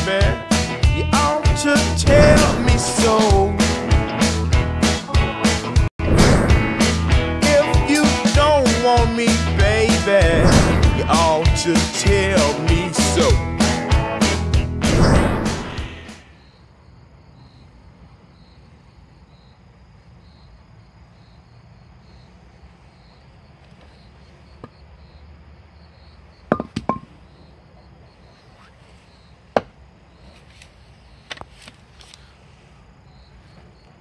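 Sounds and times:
background music: 0.0 - 16.2
insects chirping: 16.1 - 34.0.

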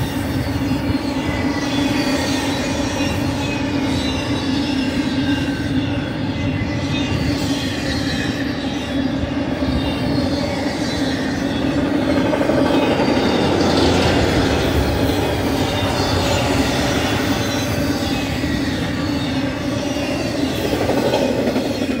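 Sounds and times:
freight train wheels rolling on rails: 0.0 - 22.0.

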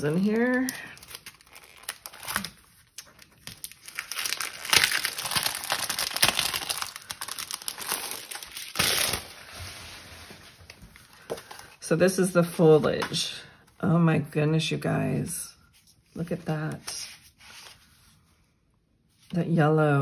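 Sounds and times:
cellophane crinkling: 0.0 - 11.8.

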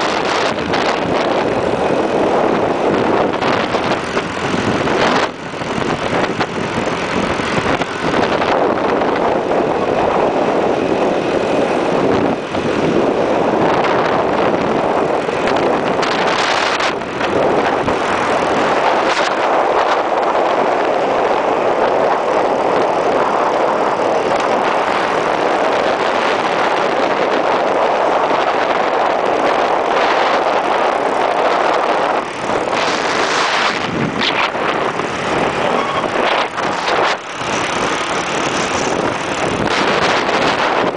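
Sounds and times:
wind and road noise: 0.0 - 40.9
motorbike engine running: 31.4 - 40.9.

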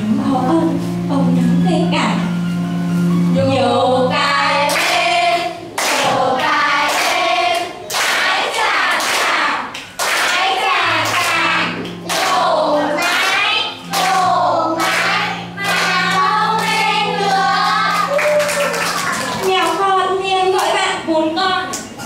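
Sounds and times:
children singing together: 3.5 - 18.2.

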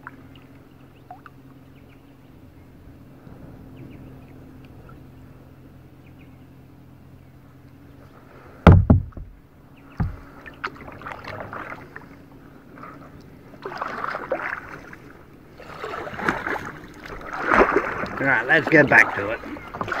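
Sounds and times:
paddle strokes splashing water: 7.6 - 20.0
heavy knocks on kayak: 8.6 - 10.3.

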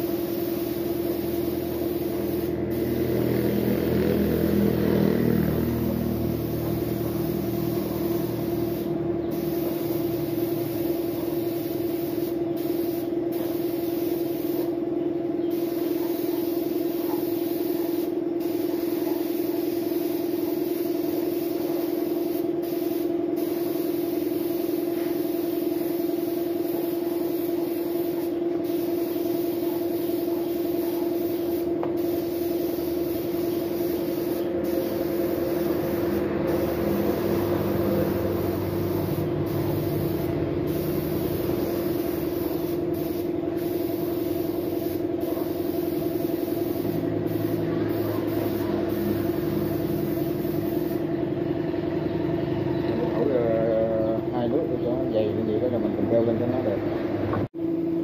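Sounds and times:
paint spray gun hissing: 0.0 - 14.8, 15.5 - 51.1
air compressor humming: 0.0 - 56.3.

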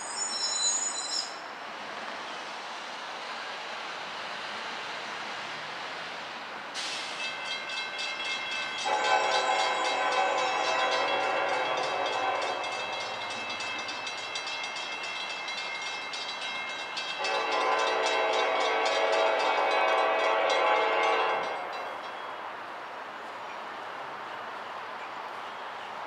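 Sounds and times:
locomotive air horn blasts: 8.8 - 12.8, 17.2 - 21.6.

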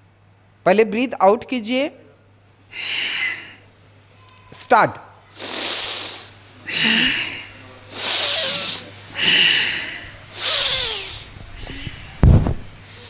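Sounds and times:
man breathing into a microphone: 2.7 - 3.6, 6.7 - 12.2.

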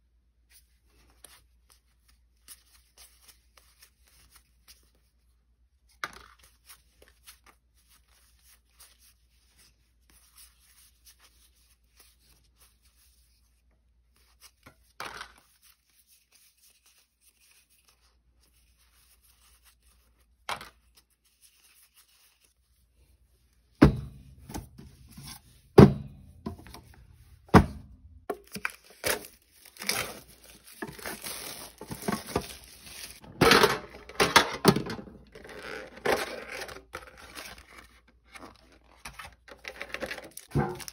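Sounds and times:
foil wrapper crinkling and tearing: 28.4 - 33.2, 35.2 - 40.9.

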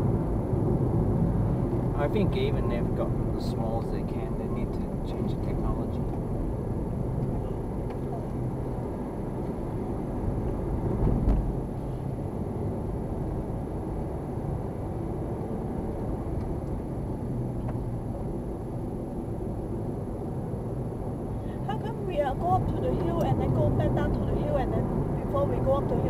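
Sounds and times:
car road and engine rumble: 0.0 - 26.0
low thump: 11.0 - 11.5.

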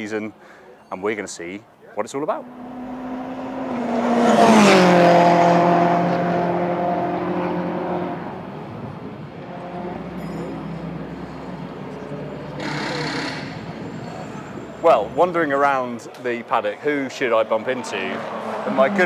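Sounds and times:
racing car passing at speed: 2.4 - 14.8, 17.4 - 19.0.

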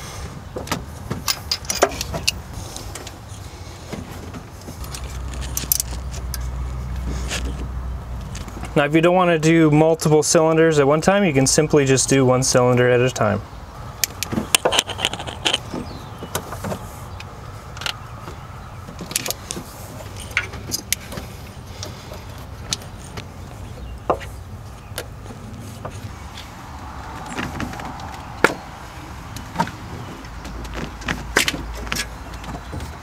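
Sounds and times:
clicks and rattles of handled parts: 0.6 - 3.2, 3.9 - 7.6, 14.0 - 18.0, 18.9 - 23.3.

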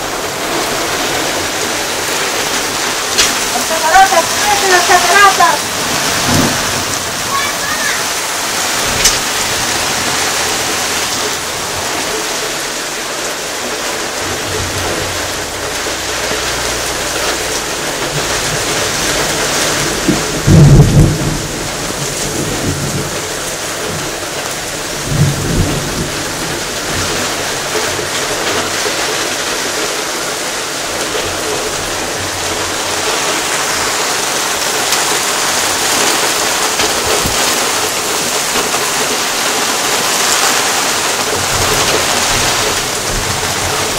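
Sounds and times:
thunder rumble: 0.0 - 7.4, 8.0 - 28.8, 41.0 - 43.9
rain falling steadily: 0.0 - 43.9
loud thunder clap: 2.6 - 11.9, 17.9 - 27.3.

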